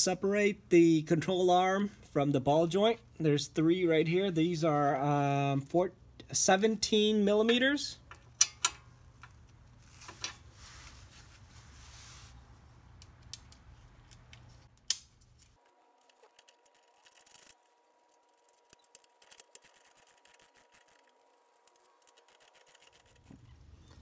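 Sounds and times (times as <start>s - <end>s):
ratchet clicking: 18.2s - 23.3s.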